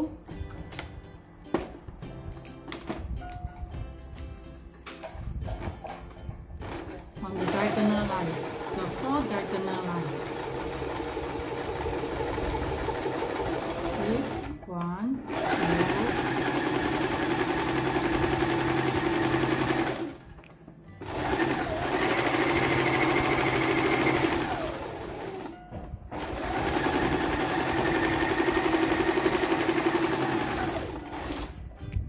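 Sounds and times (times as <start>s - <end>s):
sewing machine stitching: 6.6s - 14.6s, 15.2s - 20.3s, 21.0s - 31.6s.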